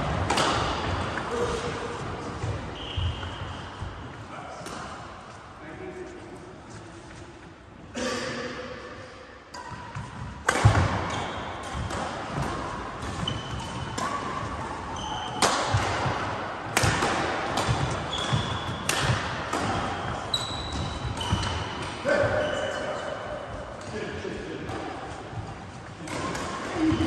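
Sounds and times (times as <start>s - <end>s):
shuttlecock hitting racket: 0.2s - 1.3s, 15.3s - 22.0s
shoes squeaking: 2.2s - 4.1s, 13.0s - 15.5s, 20.0s - 23.2s.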